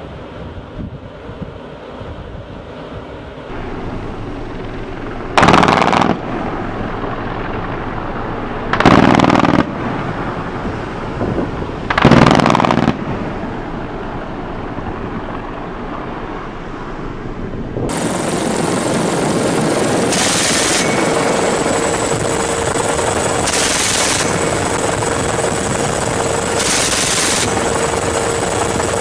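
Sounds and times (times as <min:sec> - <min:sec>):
ship noise: 0:00.0 - 0:29.0
wind: 0:00.0 - 0:29.0
machine-gun bursts: 0:05.4 - 0:06.2, 0:08.8 - 0:09.7, 0:11.9 - 0:13.0, 0:20.0 - 0:29.0.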